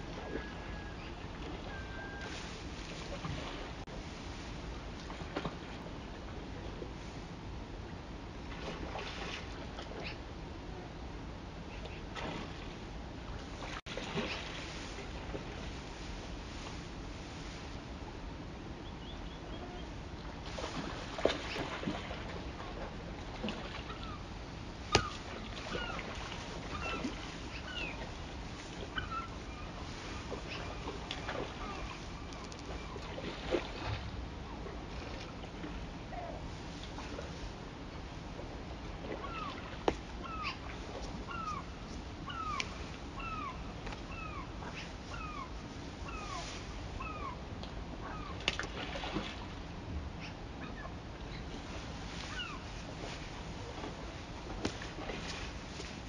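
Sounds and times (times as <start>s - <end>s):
water lapping: 0.0s - 7.3s, 8.4s - 10.2s, 11.7s - 17.6s, 20.4s - 47.4s, 48.0s - 56.0s
wind: 0.0s - 56.0s
gull mewing calls: 24.9s - 28.0s, 39.1s - 41.7s, 42.3s - 45.5s, 46.1s - 47.4s.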